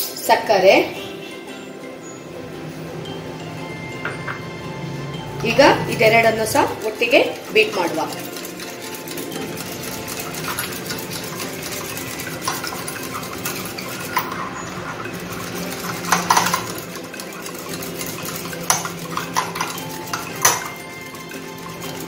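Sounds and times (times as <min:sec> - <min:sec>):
whisk beating in glass bowl: 0:05.3 - 0:22.0
whisk clinking against bowl: 0:05.5 - 0:22.0.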